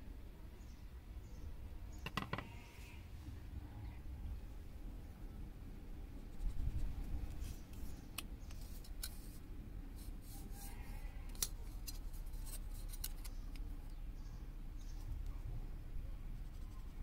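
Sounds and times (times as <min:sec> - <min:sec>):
steady low rumble: 0:03.0 - 0:10.2.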